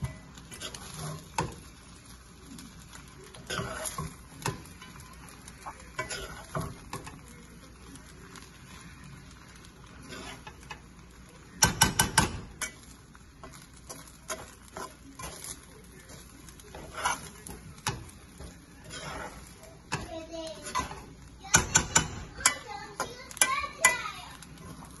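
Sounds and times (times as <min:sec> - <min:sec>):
spoon stirring rice in a pan: 0:00.0 - 0:25.0
spoon tapping against pan: 0:01.4 - 0:01.7, 0:03.5 - 0:07.2, 0:11.6 - 0:15.5, 0:16.7 - 0:24.0.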